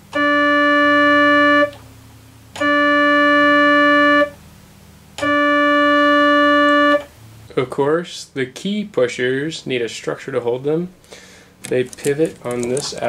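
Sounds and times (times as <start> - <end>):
electronic keyboard note: 0.0 - 4.4, 5.2 - 7.3.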